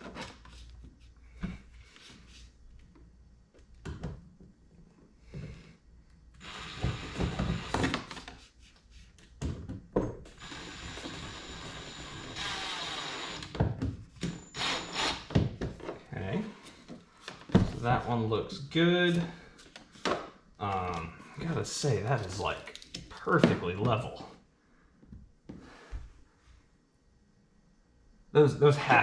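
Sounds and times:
drill driving screws into plastic: 6.4 - 8.2, 10.4 - 13.6, 14.5 - 15.3.

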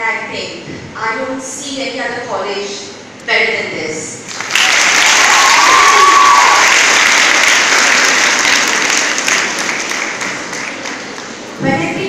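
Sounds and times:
audience applauding: 4.3 - 11.6.

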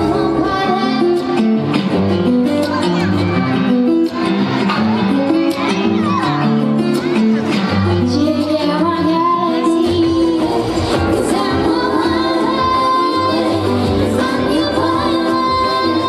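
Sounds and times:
woman singing into a microphone: 0.0 - 1.6, 8.0 - 16.0.

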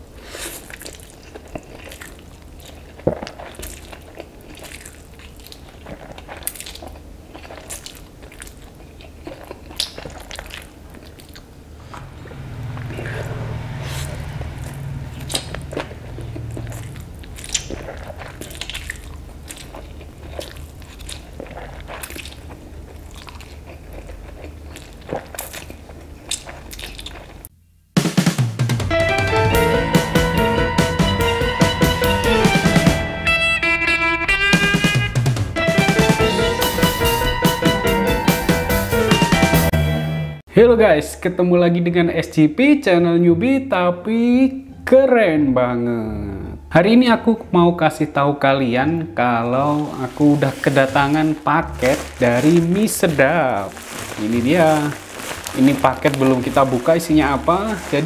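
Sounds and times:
slurping and chewing noodles: 0.0 - 27.5, 49.5 - 58.0
mouth clicks and smacks: 0.6 - 12.1, 15.2 - 22.4
low hum: 11.5 - 19.4
music: 28.0 - 40.4.

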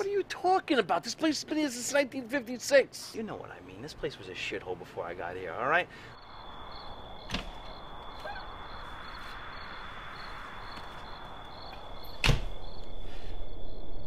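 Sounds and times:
insects chirping: 5.0 - 14.0.

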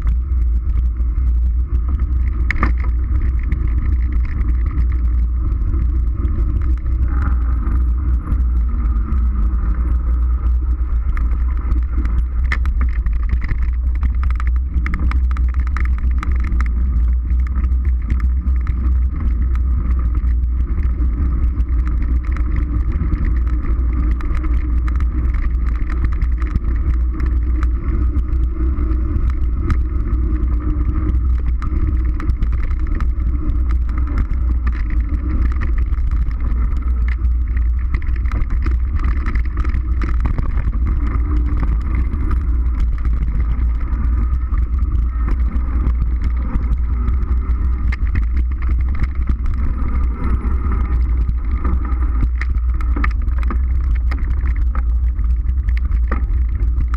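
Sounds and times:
bike knocks and rattles: 0.0 - 56.9
tyres rolling over dirt: 0.0 - 56.9
wind rush on microphone: 0.0 - 56.9.

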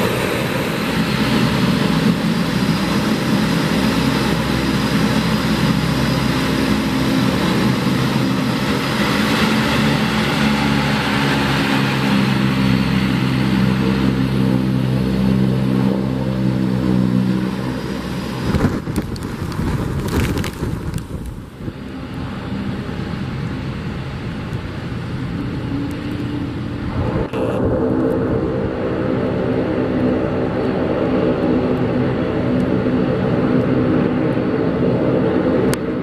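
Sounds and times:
propeller drone: 0.0 - 36.0
sharp crackles and bumps: 18.3 - 21.8
rush of air: 24.5 - 31.1.

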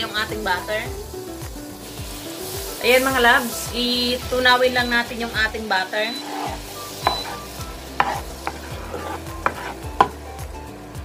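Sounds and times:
butter sizzling in a pan: 0.0 - 11.0
wooden spoon knocking against pan: 7.0 - 7.4, 8.0 - 10.2.

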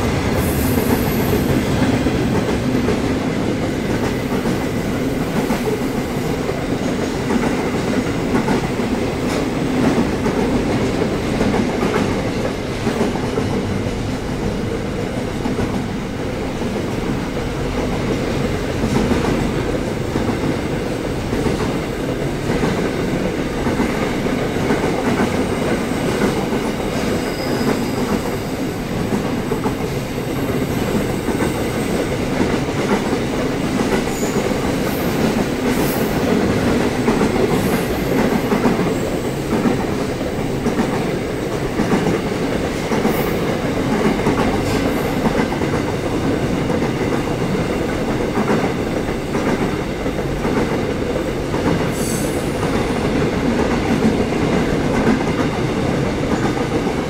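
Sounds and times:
freight train rumbling past: 0.0 - 57.0
high-pitched wheel squeals: 27.1 - 28.3.

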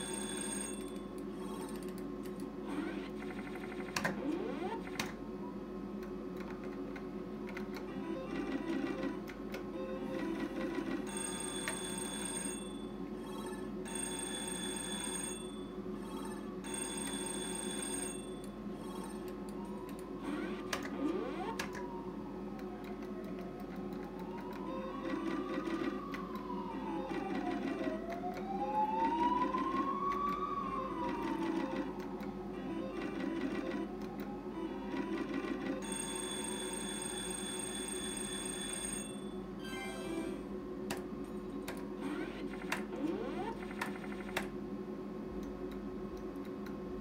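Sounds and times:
bright ringing win tones: 0.0 - 1.6, 10.8 - 19.3, 35.7 - 40.5
slot machine reel spin rattling: 0.0 - 1.8, 2.8 - 5.0, 10.0 - 19.3, 24.9 - 28.1, 32.8 - 34.0, 34.8 - 40.4, 42.0 - 44.4.

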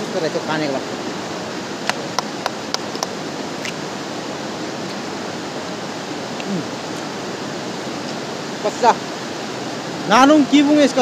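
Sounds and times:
river rushing: 0.0 - 11.0.

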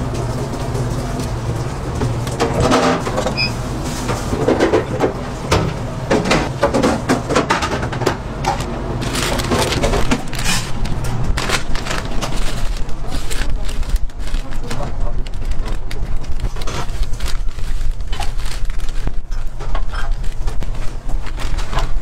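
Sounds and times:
low machine hum: 0.0 - 22.0
rustling wrappers and foil bags: 0.0 - 22.0
clatter and knocks: 0.1 - 3.4, 4.0 - 12.7.

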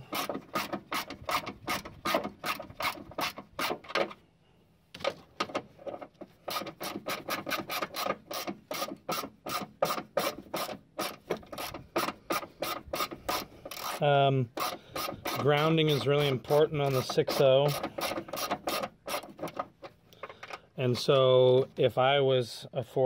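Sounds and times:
socket ratchet clicking: 6.5 - 14.0.

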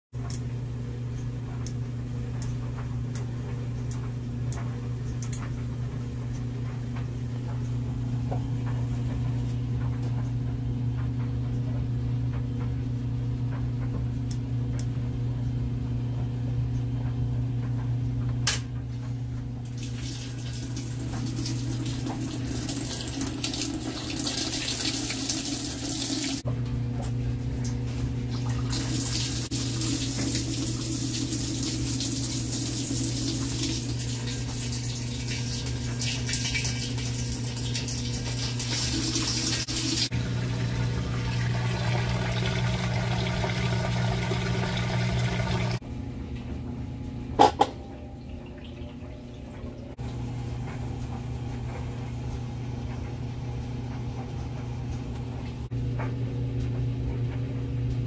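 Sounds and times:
washer low hum: 0.2 - 58.0
water rushing into tub: 28.3 - 45.8
washer click: 47.3 - 47.9.

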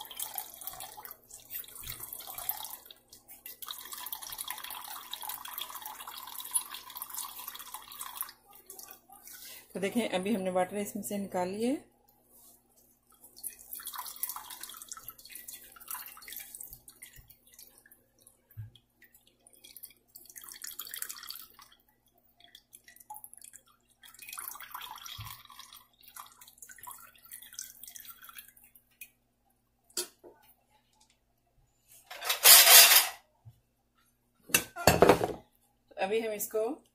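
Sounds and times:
liquid dripping into a jug: 0.0 - 9.2, 13.1 - 29.2.

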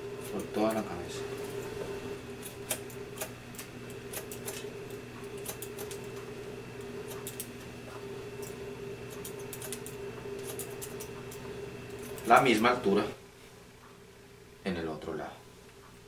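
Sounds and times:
steady low hum: 0.0 - 16.0
scissors snipping hair: 2.4 - 7.7, 8.4 - 12.5.

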